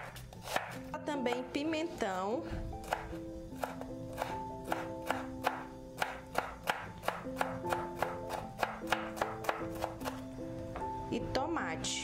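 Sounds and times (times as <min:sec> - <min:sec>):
knife chopping on cutting board: 0:00.0 - 0:01.4, 0:02.8 - 0:10.2
background music with held notes: 0:00.0 - 0:12.0.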